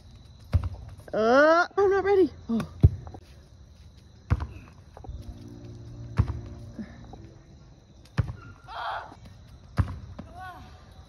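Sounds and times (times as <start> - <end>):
soccer ball thuds: 0.4 - 1.0, 2.6 - 3.2, 4.2 - 4.8, 6.1 - 6.6, 8.1 - 8.6, 9.2 - 10.4.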